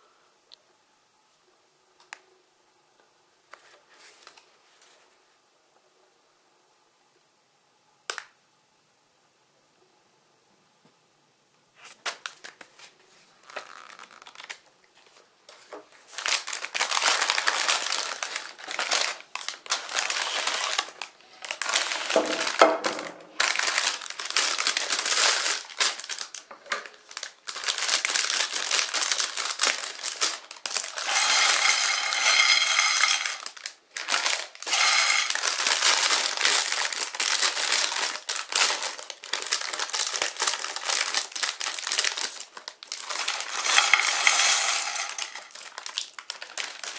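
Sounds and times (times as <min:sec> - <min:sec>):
plastic bags crinkling: 0:11.8 - 0:15.3, 0:15.9 - 0:46.9
plastic bricks clattering on plate: 0:30.2 - 0:37.0, 0:42.0 - 0:46.9.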